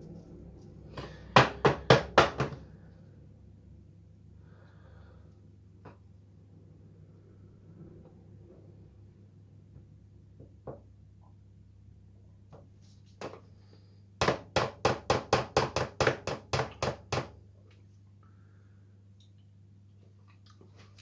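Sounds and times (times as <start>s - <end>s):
low electrical hum: 0.0s - 21.0s
hard knocks on a worktop: 1.3s - 2.6s, 14.2s - 17.4s.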